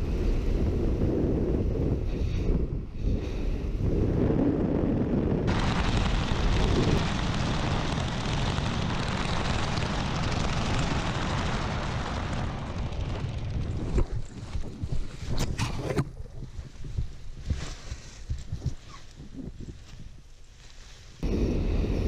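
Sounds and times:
wind buffeting microphone: 0.0 - 20.3
hissing rush of air: 21.2 - 22.0.

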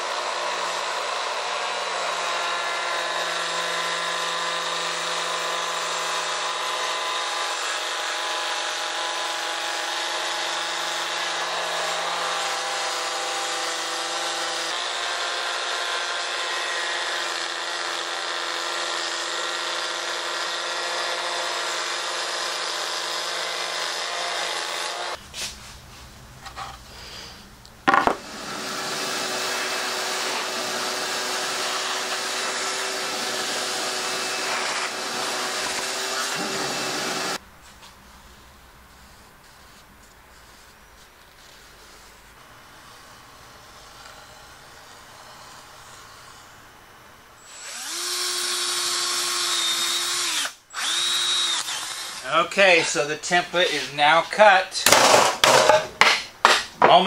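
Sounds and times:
router routing wood: 0.0 - 25.2, 27.9 - 37.4, 47.4 - 54.4
shop vacuum running: 27.9 - 37.4.

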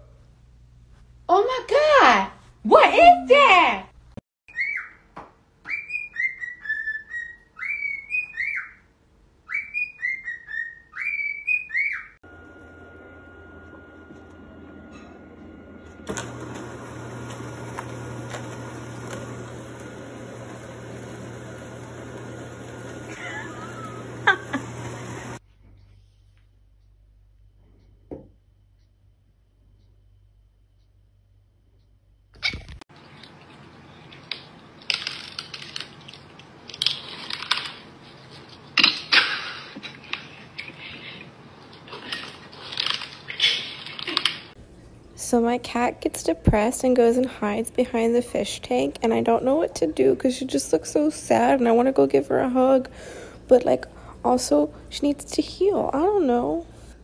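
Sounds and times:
electric motor hum: 12.3 - 25.4
cat crunching dry kibble: 34.1 - 38.6, 41.8 - 44.4.

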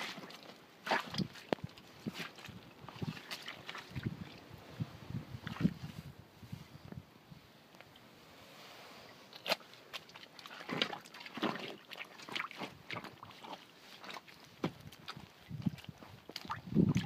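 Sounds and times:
boots walking through mud: 0.0 - 4.4, 9.4 - 17.0.

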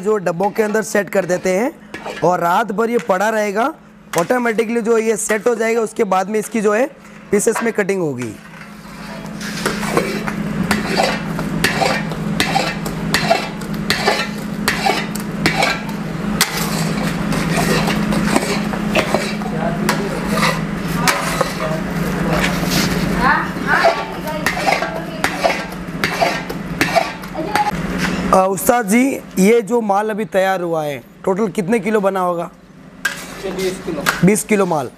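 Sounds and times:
steady low hum: 0.0 - 34.9
metal ladle scraping a pan: 0.3 - 2.4, 8.7 - 19.5, 23.6 - 27.2.

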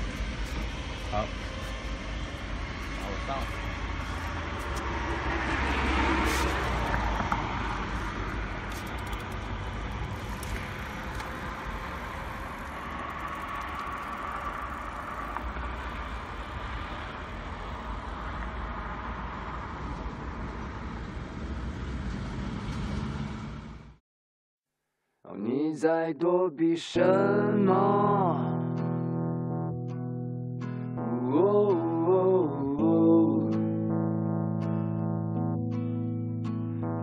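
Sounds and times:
road traffic passing: 0.0 - 24.0.

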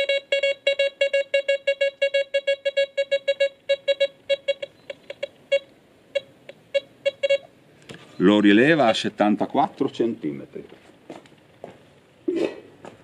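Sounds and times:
metal detector beeps: 0.0 - 7.5, 8.1 - 9.0.

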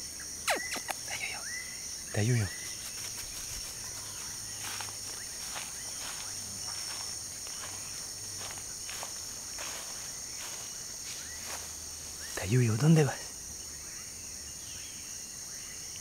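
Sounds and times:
insects chorus: 0.0 - 16.0
footsteps rustling through dry grass: 2.5 - 12.6.

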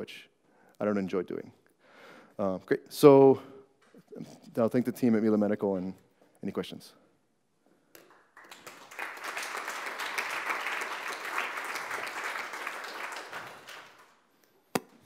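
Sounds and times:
audience applauding: 8.0 - 14.2.

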